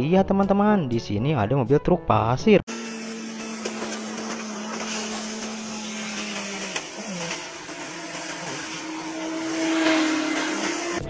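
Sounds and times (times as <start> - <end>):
truck engine running with a whine: 2.7 - 11.0.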